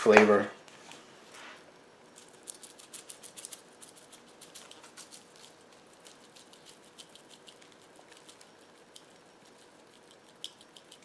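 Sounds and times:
spice shaker rattling: 2.2s - 11.0s.

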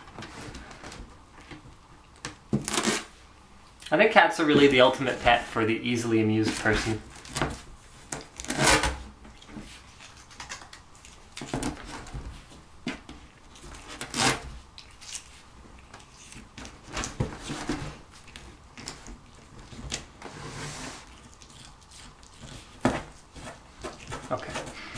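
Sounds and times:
tape tearing off cardboard: 2.5s - 3.2s, 6.5s - 9.1s, 13.6s - 15.4s
cats scratching cardboard box: 9.6s - 24.9s.

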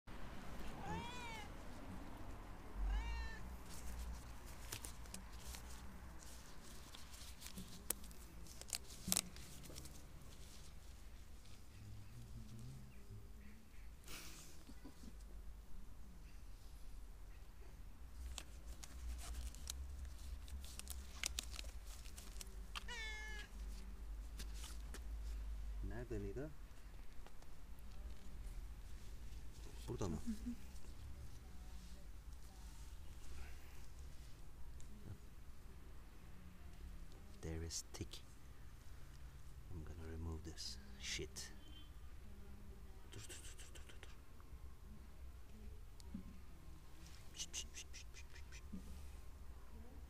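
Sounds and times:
cat meowing: 0.7s - 1.6s, 2.8s - 3.5s, 22.8s - 23.6s
disposable gloves crinkling and snapping: 3.6s - 11.6s, 18.2s - 23.0s, 23.6s - 25.1s.

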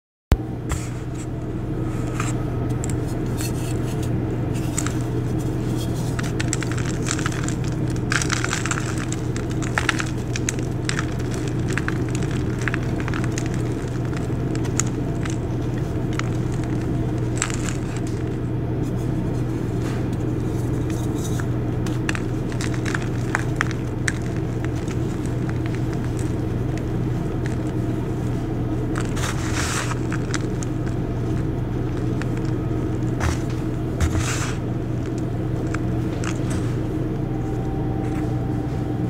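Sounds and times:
steady low hum: 0.3s - 39.0s
chalk crunching by hand: 20.4s - 36.6s.

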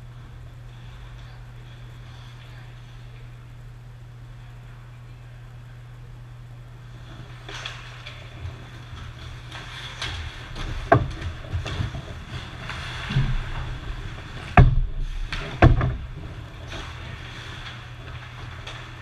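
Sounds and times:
low hum of the rink: 0.0s - 19.0s
sticks and puck knocking: 9.0s - 12.2s, 14.4s - 16.1s.

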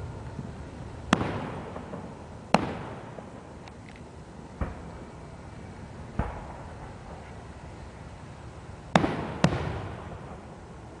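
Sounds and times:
fireworks bangs: 0.4s - 3.6s, 4.6s - 5.2s, 6.0s - 7.4s, 8.9s - 10.5s.

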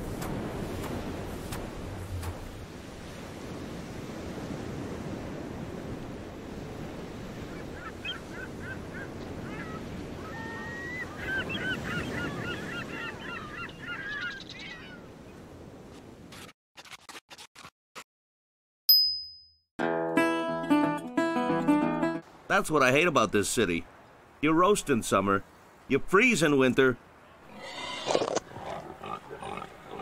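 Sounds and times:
surf washing on a beach: 0.0s - 13.4s.

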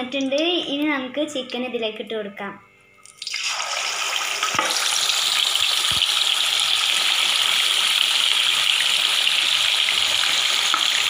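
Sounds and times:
chicken deep-frying in oil: 3.1s - 11.0s.

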